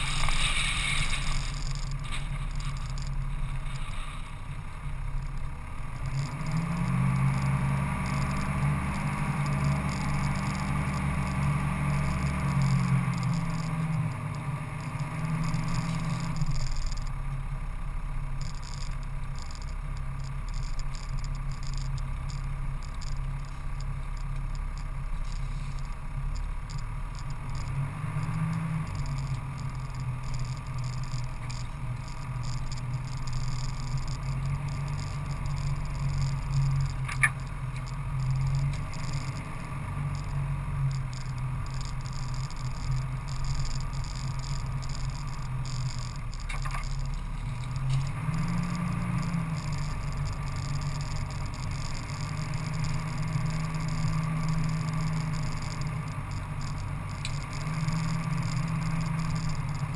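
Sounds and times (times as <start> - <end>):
tyre and rattle noise: 0.0 - 6.6
off-road vehicle engine running: 0.0 - 59.9
sharp clicks: 18.3 - 59.9.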